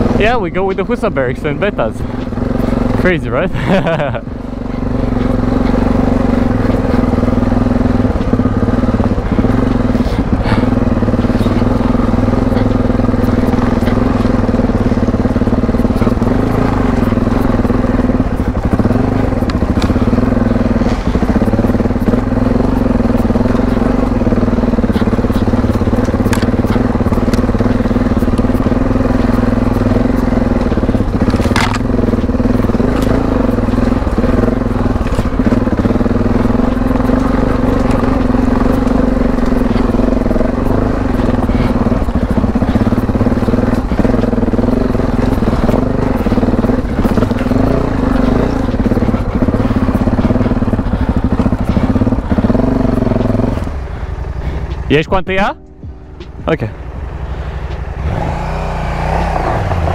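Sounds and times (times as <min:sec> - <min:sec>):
motorcycle engine running: 0:00.0 - 0:59.9
stones crunching under tyres: 0:04.8 - 0:54.9.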